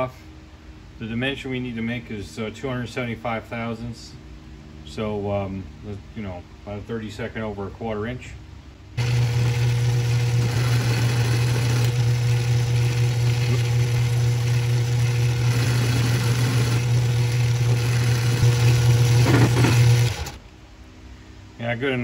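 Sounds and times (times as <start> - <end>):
metal lathe motor humming: 9.0 - 20.4
tool cutting steel pin: 19.1 - 20.4.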